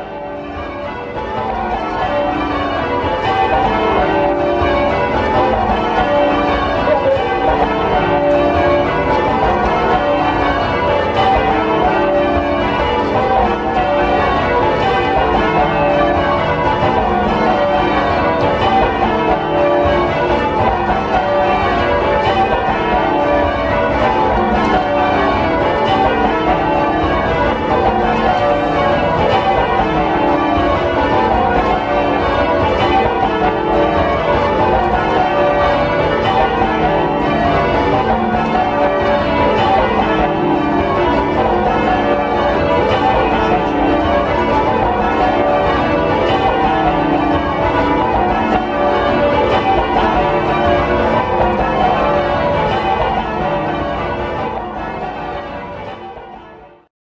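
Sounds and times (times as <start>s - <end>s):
church bells ringing: 0.0s - 56.9s.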